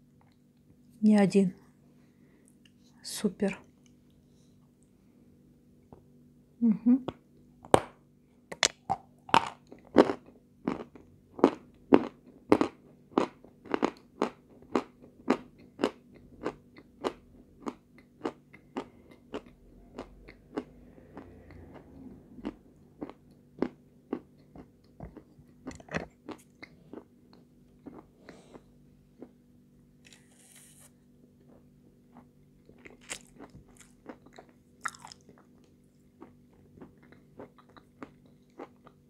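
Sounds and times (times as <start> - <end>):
crunchy chewing close up: 8.6 - 28.6, 32.1 - 39.0.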